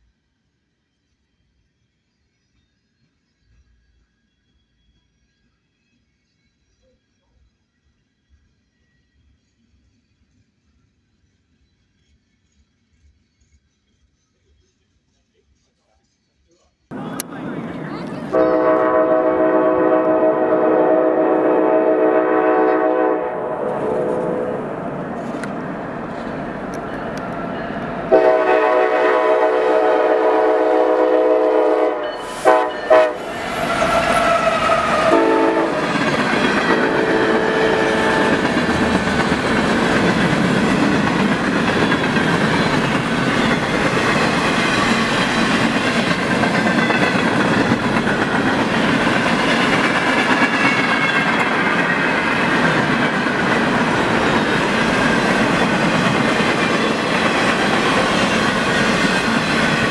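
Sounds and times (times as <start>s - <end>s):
train wheels on rail: 0.7s - 59.9s
locomotive air horn: 17.0s - 24.8s, 28.0s - 38.9s
high wheel squeal: 32.0s - 52.4s.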